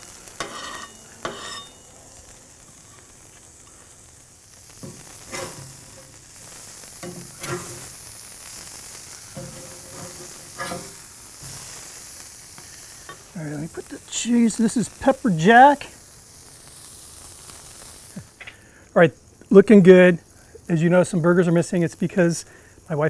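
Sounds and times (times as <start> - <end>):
metal spatula scraping grill: 0.0 - 2.0, 4.7 - 15.8
meat sizzling on a grill: 0.0 - 23.0.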